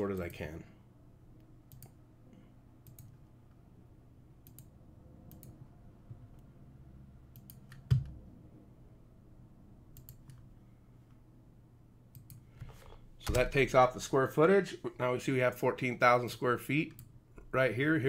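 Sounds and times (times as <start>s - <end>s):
faint low hum: 0.0s - 18.0s
computer mouse clicking: 1.4s - 2.0s, 2.8s - 3.2s, 4.4s - 4.7s, 5.3s - 5.6s, 7.3s - 8.2s, 9.9s - 10.5s, 12.1s - 13.4s.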